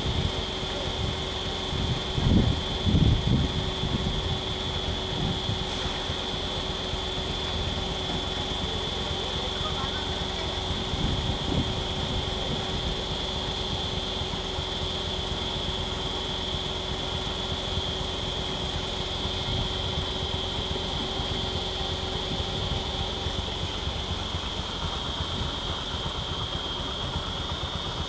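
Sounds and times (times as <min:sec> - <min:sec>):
vehicle engine idling: 0:00.0 - 0:28.0.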